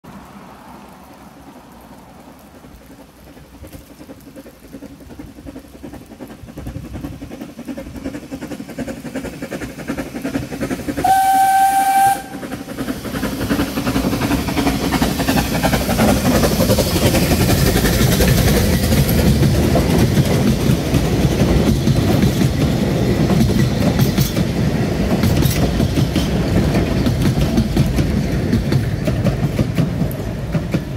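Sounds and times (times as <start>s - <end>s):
steam locomotive running: 0.1s - 30.9s
steam whistle blast: 11.0s - 12.5s.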